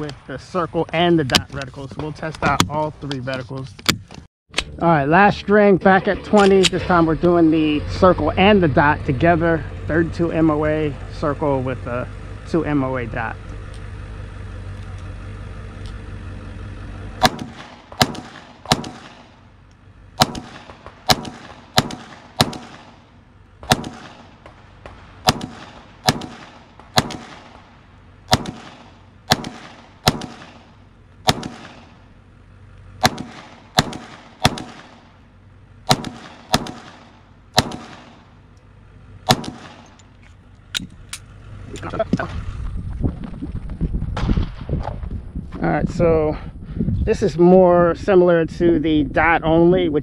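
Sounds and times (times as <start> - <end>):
steady low hum: 0.0 - 50.0
pistol shots with echo: 17.2 - 19.5, 20.2 - 32.1, 33.0 - 35.2, 35.9 - 38.3, 39.2 - 40.0.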